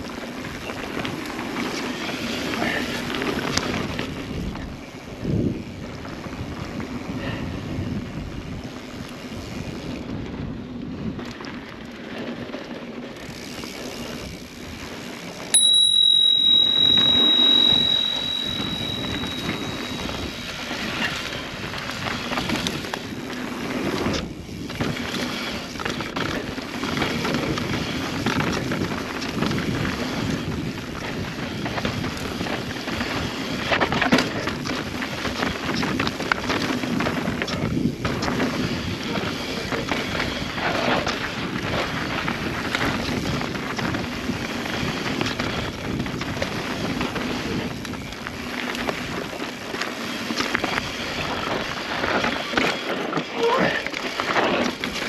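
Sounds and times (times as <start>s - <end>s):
mountain bike riding on dirt: 0.0s - 15.6s, 18.2s - 55.0s
bicycle bell ringing: 15.5s - 21.2s.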